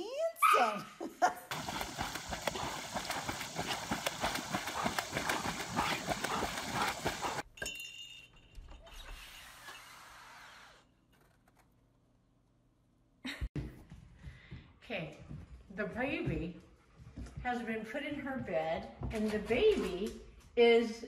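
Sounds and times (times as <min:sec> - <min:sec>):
dogs splashing in water: 0:01.5 - 0:07.4.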